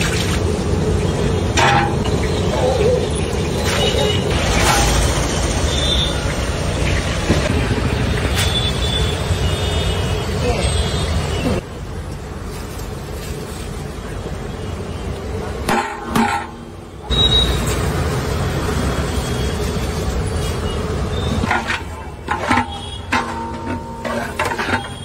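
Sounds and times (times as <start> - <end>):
steel paddle clinking on metal pot: 1.6 - 2.3.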